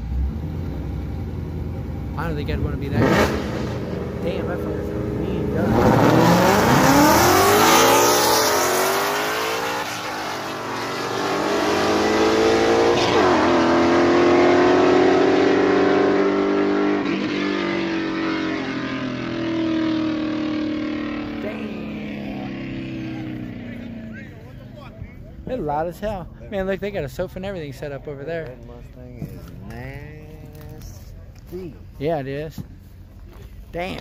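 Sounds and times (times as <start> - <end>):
race car engine revving: 0.0 - 25.9.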